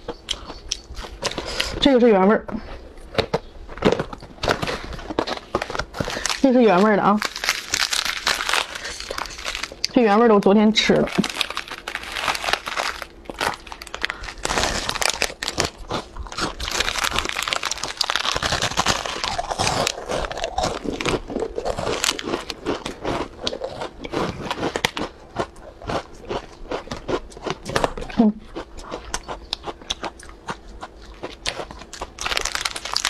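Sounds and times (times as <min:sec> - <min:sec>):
crunchy chewing of wafer: 0:00.0 - 0:01.8, 0:02.6 - 0:10.0, 0:11.0 - 0:33.0
plastic wrapper crinkling: 0:03.0 - 0:23.7, 0:31.8 - 0:33.0.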